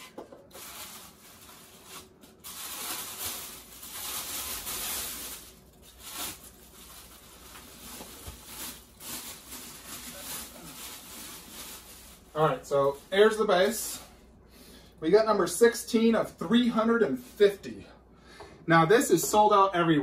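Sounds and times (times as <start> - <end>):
packing material rustling and scraping: 0.0 - 13.8.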